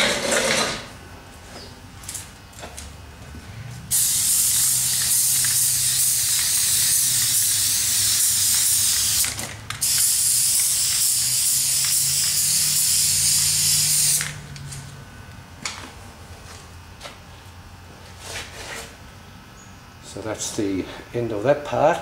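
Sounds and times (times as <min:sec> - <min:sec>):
spray paint can hissing: 0:03.9 - 0:14.4.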